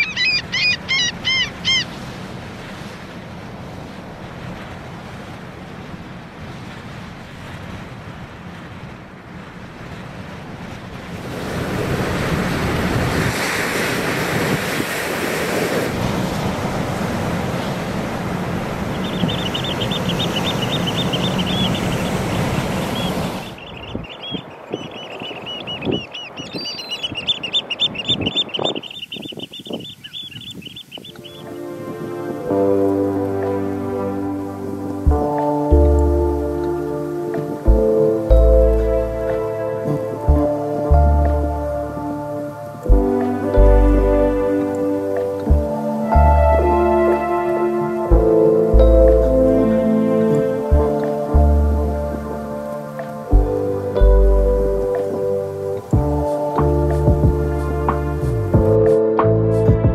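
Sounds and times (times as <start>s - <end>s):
small bird trilling: 0.0s - 1.9s, 18.9s - 31.5s
sea surf: 0.0s - 59.9s
wind: 0.0s - 59.9s.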